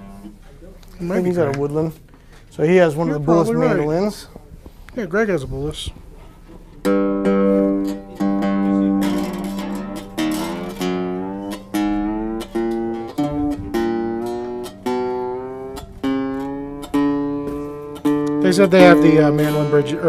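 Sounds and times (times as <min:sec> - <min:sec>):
mandolin chords ringing: 0:00.0 - 0:20.0.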